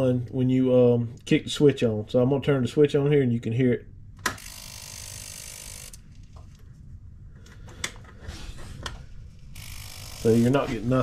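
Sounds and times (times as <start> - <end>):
electrical hiss: 10.0 - 11.0.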